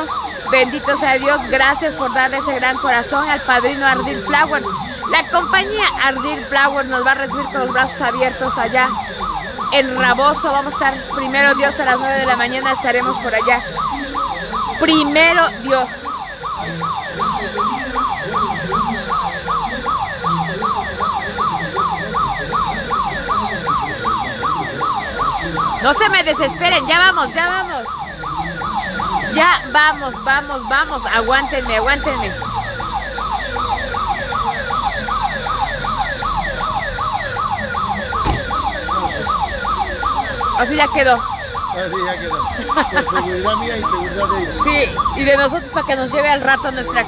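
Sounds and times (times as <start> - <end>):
electronic siren yelping: 0.0 - 47.0
thump: 38.2 - 38.6.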